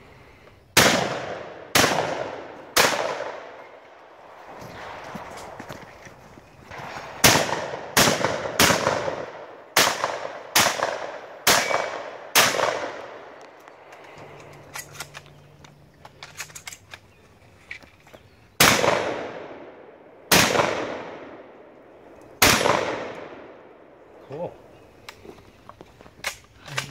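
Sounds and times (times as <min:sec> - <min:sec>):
gunshots echoing: 0:00.8 - 0:05.9, 0:06.6 - 0:13.4, 0:18.6 - 0:21.8, 0:22.4 - 0:24.2.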